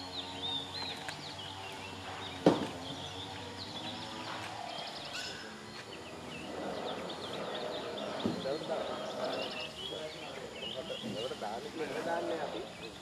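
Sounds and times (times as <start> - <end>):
birds chirping: 0.0 - 13.0
sharp loud thump: 2.4 - 2.8.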